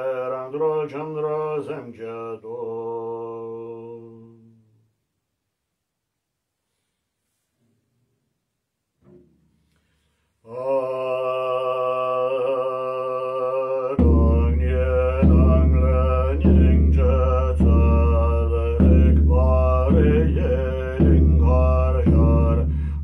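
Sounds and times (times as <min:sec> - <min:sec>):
man chanting on a held tone: 0:00.0 - 0:04.4, 0:10.5 - 0:22.9
frame drum slow beat: 0:14.0 - 0:23.0.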